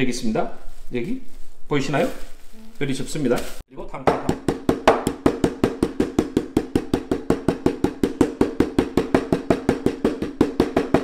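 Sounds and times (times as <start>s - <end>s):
meat pounder thudding on wood: 4.1s - 11.0s.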